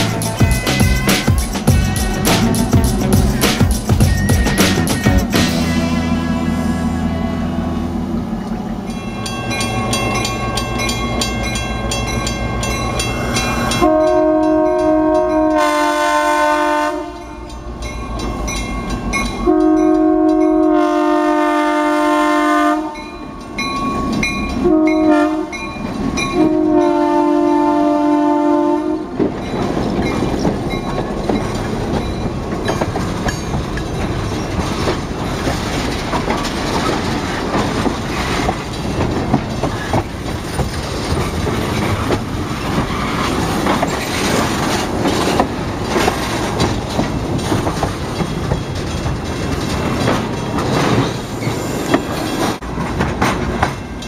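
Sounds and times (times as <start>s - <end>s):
wheels clicking over rail joints: 0.0s - 6.0s, 8.4s - 21.2s, 23.0s - 27.7s, 28.9s - 54.0s
train rumbling past: 0.0s - 54.0s
locomotive air horn: 5.4s - 8.2s, 13.8s - 17.5s, 19.4s - 23.2s, 24.6s - 25.6s, 26.3s - 29.2s.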